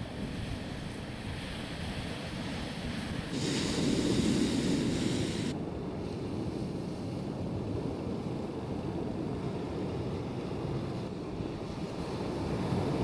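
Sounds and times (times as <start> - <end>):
sea surf: 0.0 - 13.0
wind buffeting microphone: 0.0 - 13.0
loud hiss: 3.3 - 5.5.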